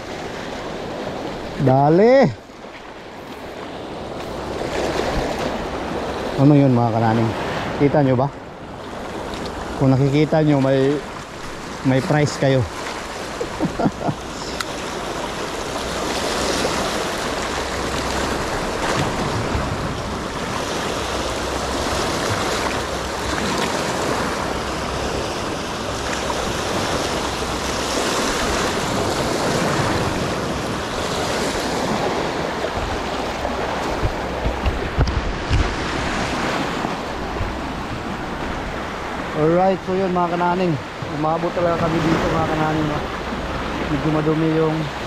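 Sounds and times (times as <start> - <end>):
sea waves washing in: 0.0 - 45.0
wind buffeting microphone: 3.5 - 39.4
dull knocks: 33.8 - 35.8.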